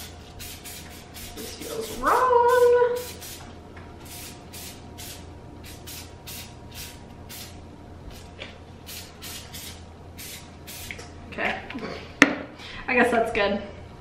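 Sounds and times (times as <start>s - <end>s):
cooking spray short hisses: 0.0s - 3.4s, 4.0s - 7.6s, 8.9s - 11.0s.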